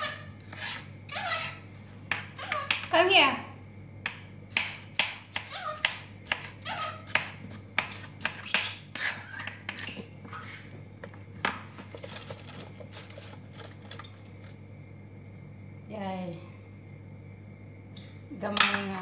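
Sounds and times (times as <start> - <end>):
knife chopping on cutting board: 4.0 - 9.9.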